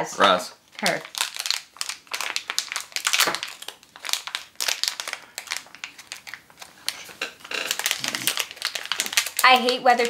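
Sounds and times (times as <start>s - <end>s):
packaging crinkling: 0.7s - 10.0s.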